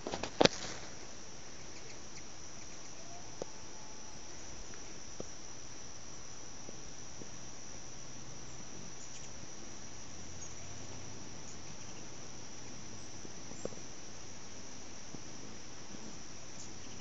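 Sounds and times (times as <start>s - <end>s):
crickets trilling: 0.0s - 17.0s
faint ticks: 4.3s - 5.5s, 8.6s - 17.0s.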